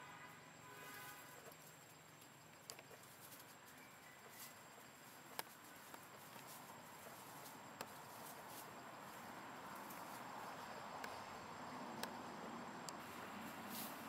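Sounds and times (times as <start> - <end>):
sharp ticks: 5.2 - 6.5, 11.0 - 11.2, 11.9 - 12.2
light rustles: 13.0 - 14.0.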